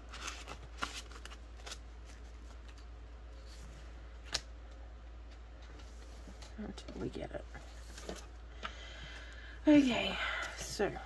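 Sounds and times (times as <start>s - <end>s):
plastic and banknotes rustling: 0.0s - 3.5s
low steady hum: 0.0s - 11.0s.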